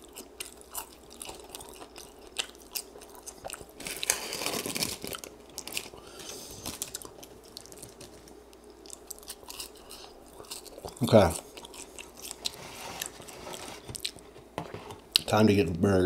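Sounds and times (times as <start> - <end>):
chewing crispy fries: 0.0 - 14.3
paper wrapper rustling: 3.8 - 6.0.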